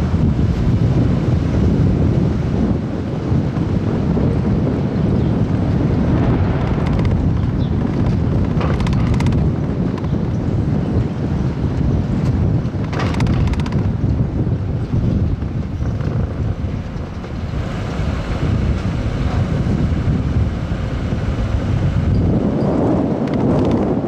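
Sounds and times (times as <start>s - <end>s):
wind buffeting the microphone: 0.0s - 24.0s.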